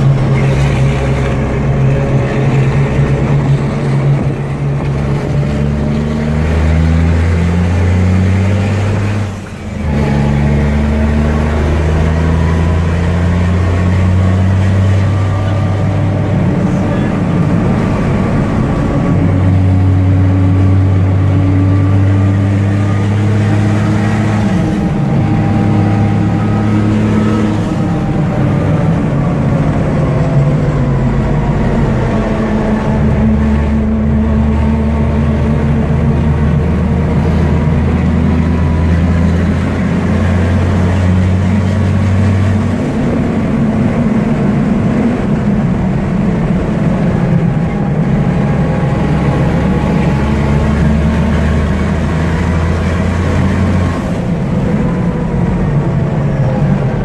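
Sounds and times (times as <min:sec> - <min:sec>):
truck diesel engine running hard: 0:00.0 - 0:57.0.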